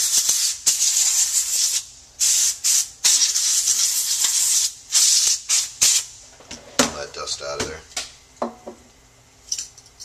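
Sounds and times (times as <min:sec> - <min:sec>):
compressed air hissing: 0:00.0 - 0:06.2.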